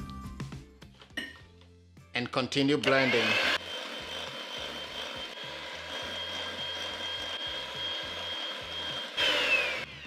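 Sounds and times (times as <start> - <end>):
electric hand mixer whining: 2.8 - 10.0.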